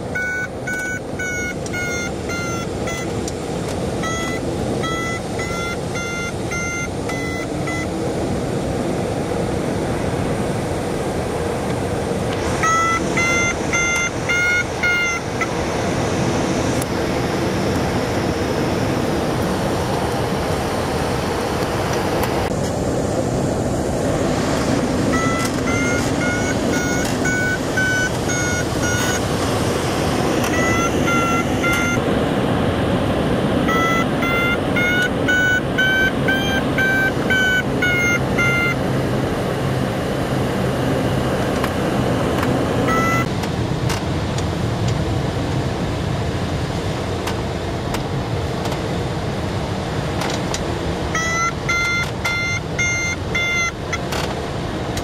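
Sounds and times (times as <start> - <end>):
variometer beeping: 0.0 - 8.0, 12.4 - 15.8, 25.1 - 32.0, 33.6 - 43.3, 51.1 - 54.3
rushing wind: 0.0 - 55.0.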